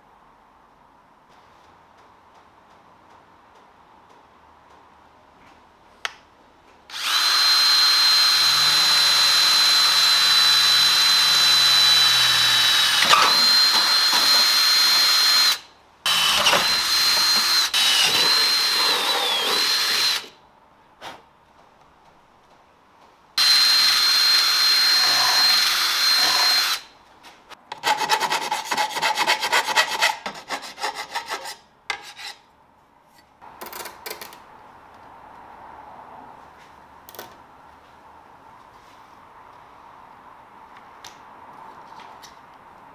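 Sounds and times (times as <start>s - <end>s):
power drill whine: 6.9s - 20.3s, 23.4s - 26.9s.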